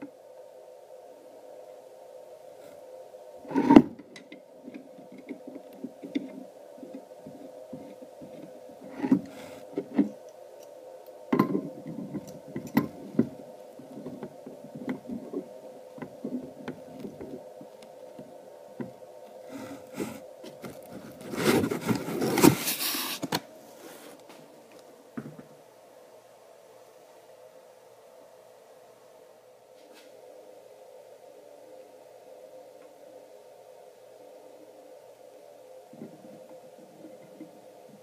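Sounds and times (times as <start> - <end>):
steady hum: 0.0 - 38.0
rustling: 2.6 - 24.9
metal scraping on wooden board: 19.5 - 23.3.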